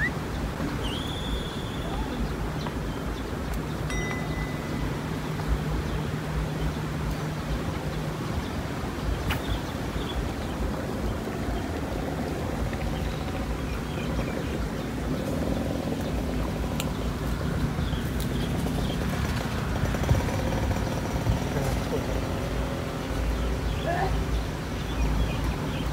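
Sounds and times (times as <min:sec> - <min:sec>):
bird chirps: 0:00.0 - 0:06.9
low outdoor rumble: 0:00.0 - 0:25.9.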